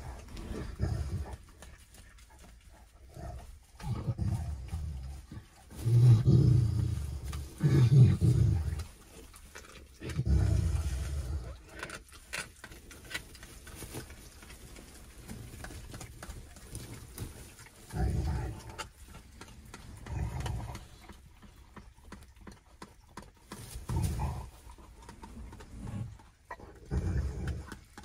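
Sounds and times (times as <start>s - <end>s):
puppies growling: 0.0s - 12.0s, 15.0s - 28.0s
clicks and rustles: 11.4s - 28.0s.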